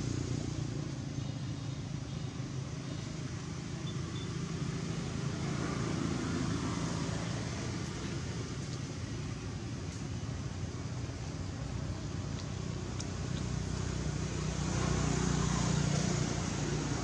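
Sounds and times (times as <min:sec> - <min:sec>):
road traffic rumble: 0:00.0 - 0:17.0
vehicle passing: 0:13.5 - 0:17.0.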